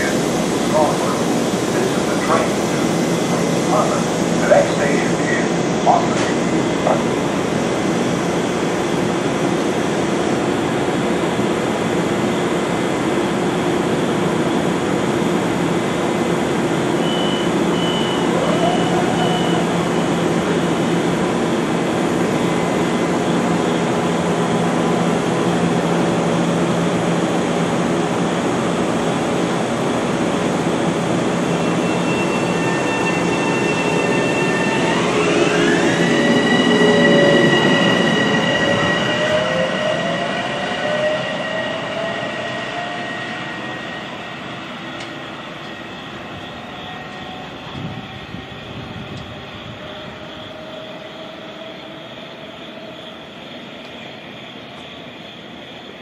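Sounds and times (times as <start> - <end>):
train equipment humming: 14.8 - 42.0
short high door beeps: 17.0 - 18.3
traction motor whine rising: 32.4 - 44.2.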